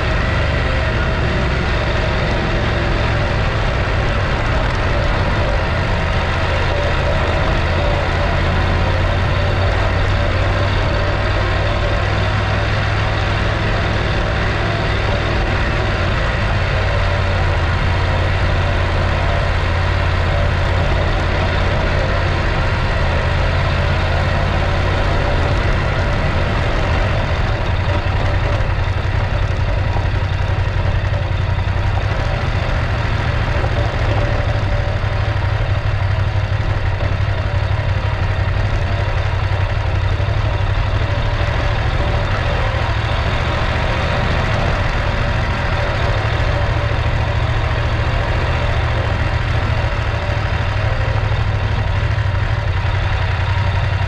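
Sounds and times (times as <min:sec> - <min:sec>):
motorcycle engine running: 0:00.0 - 0:54.0.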